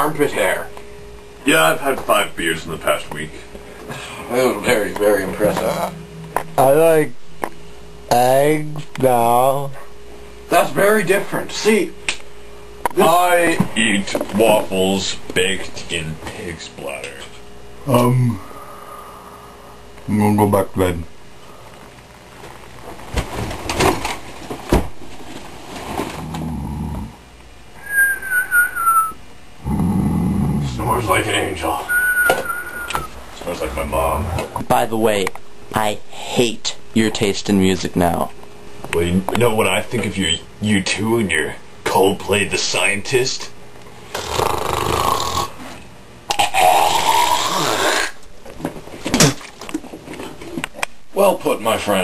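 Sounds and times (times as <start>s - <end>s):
knocks and rustles: 22.8s - 26.4s
person snoring: 26.2s - 27.2s, 29.6s - 30.8s, 44.1s - 45.6s, 46.4s - 48.2s
whistle on the out-breath: 27.8s - 29.2s, 31.9s - 33.1s
person making rude throat noises: 29.6s - 30.8s, 46.3s - 48.2s.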